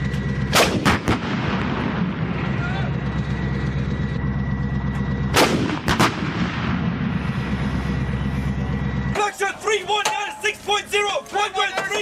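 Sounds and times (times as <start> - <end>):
vehicle engine rumbling: 0.0 - 12.0
artillery gun blast: 0.4 - 2.6, 5.3 - 7.3.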